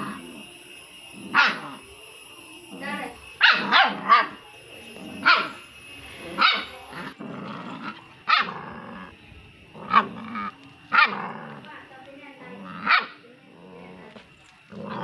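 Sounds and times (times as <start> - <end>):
puppy barking: 1.3 - 1.8, 3.4 - 4.4, 5.2 - 5.6, 6.3 - 6.8, 7.8 - 8.6, 9.9 - 11.2, 12.8 - 13.2.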